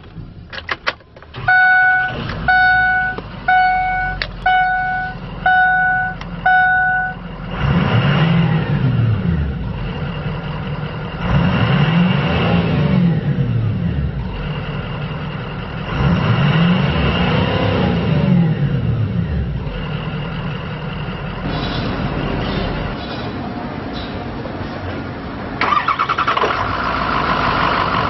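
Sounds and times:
diesel engine starting and idling: 0:00.0 - 0:28.0
dashboard warning chime: 0:01.4 - 0:07.2
engine revving: 0:01.4 - 0:24.1, 0:25.6 - 0:28.0.

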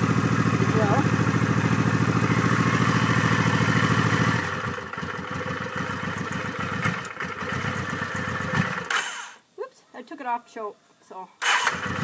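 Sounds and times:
motorcycle engine idling: 0:00.0 - 0:08.9, 0:11.7 - 0:12.0.

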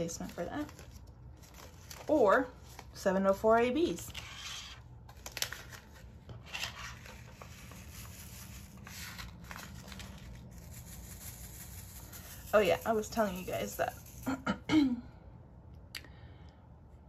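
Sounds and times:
low room hum: 0:00.0 - 0:17.0.

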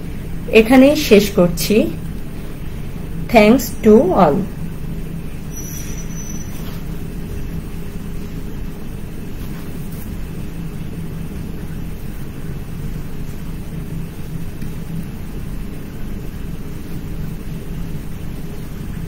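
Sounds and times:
low rumbling hum: 0:00.0 - 0:19.0.

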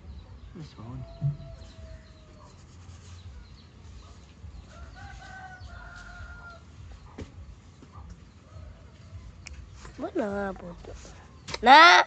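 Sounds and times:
rooster crowing: 0:01.0 - 0:02.4.

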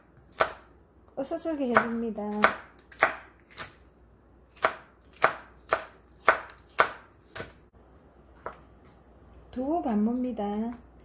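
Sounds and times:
knife chopping on wooden board: 0:00.2 - 0:00.7, 0:01.7 - 0:03.8, 0:04.5 - 0:07.6.

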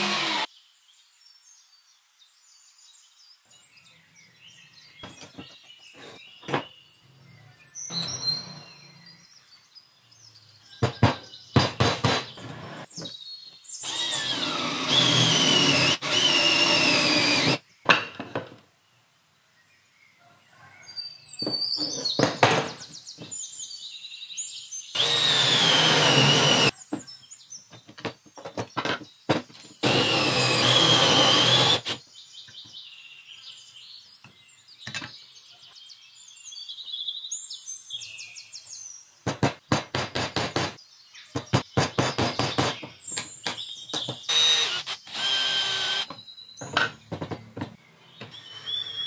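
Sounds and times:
cordless drill boring into wood: 0:00.0 - 0:00.5, 0:13.8 - 0:17.6, 0:25.0 - 0:26.7, 0:29.8 - 0:32.0, 0:44.3 - 0:46.1.

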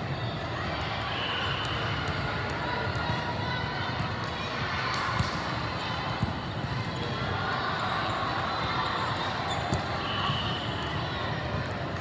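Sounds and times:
murmur of voices: 0:00.0 - 0:12.0
volleyballs hit and bouncing: 0:04.0 - 0:07.0.

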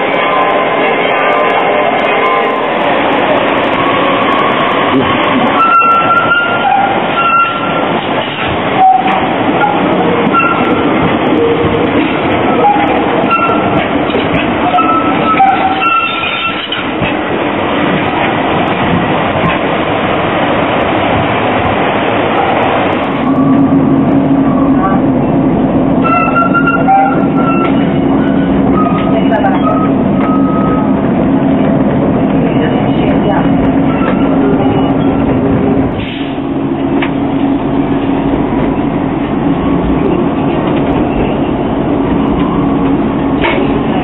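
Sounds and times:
tram wheels on rails: 0:00.0 - 0:44.0
high-pitched wheel squeals: 0:14.6 - 0:16.8, 0:26.0 - 0:30.8.

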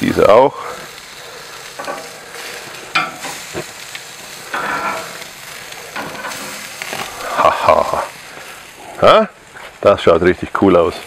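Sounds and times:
fish sizzling on a grill: 0:00.0 - 0:11.0
metal tongs clicking on grate: 0:01.8 - 0:02.1, 0:03.0 - 0:03.4.

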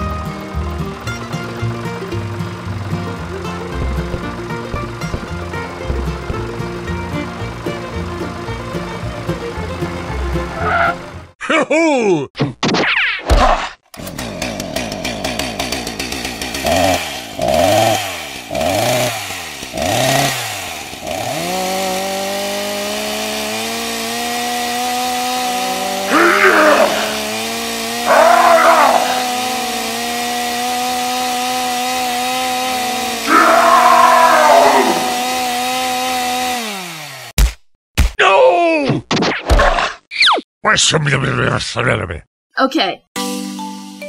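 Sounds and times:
chainsaw engine sputtering and running: 0:00.0 - 0:10.6, 0:13.9 - 0:37.4.

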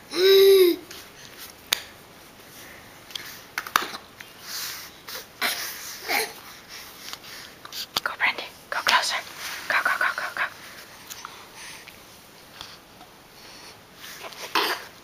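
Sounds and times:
baby huffs and clicks: 0:14.2 - 0:14.9.

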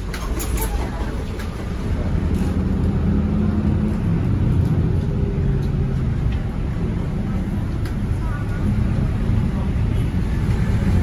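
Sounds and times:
bus diesel engine drone: 0:00.0 - 0:11.0.

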